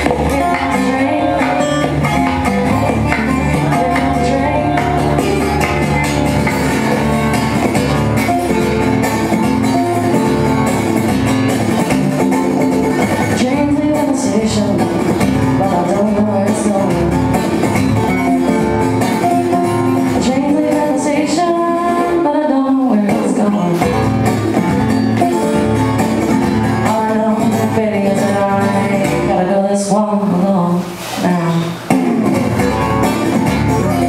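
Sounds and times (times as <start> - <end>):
woman singing: 0.0 - 6.6, 13.3 - 17.6, 20.0 - 24.1, 26.7 - 32.5
acoustic guitar: 0.0 - 34.0.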